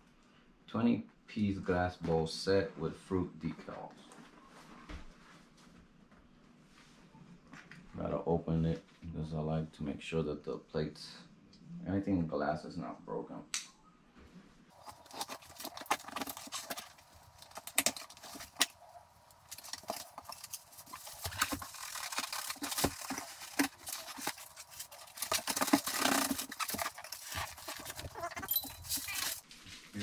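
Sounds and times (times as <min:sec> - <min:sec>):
packaging rustling and scraping: 0:14.7 - 0:30.0.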